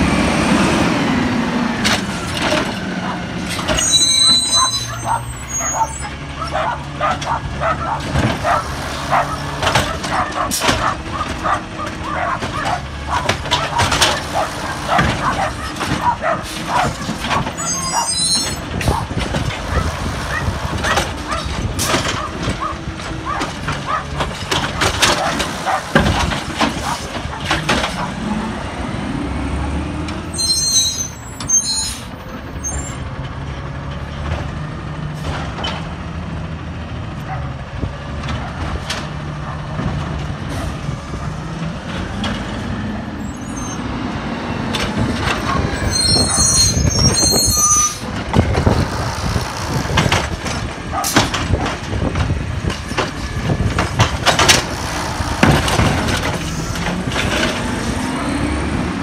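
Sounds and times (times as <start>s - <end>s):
truck engine revving: 0.0s - 30.3s, 33.0s - 59.0s
lifting arm banging carts: 4.5s - 28.4s, 44.6s - 58.2s.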